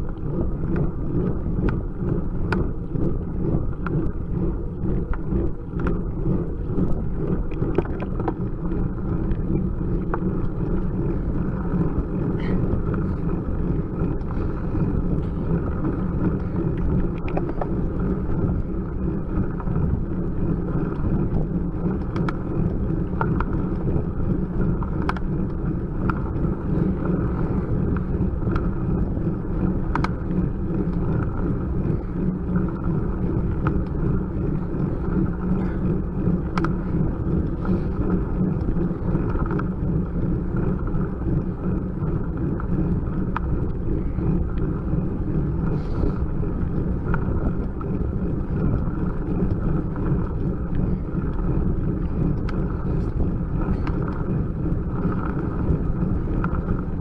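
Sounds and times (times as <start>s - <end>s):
faint ticks: 0.0s - 4.2s, 15.2s - 17.8s, 20.8s - 23.9s, 24.6s - 28.7s, 29.8s - 39.8s
bicycle tyre road noise: 0.0s - 57.0s
wind buffeting microphone: 0.0s - 57.0s.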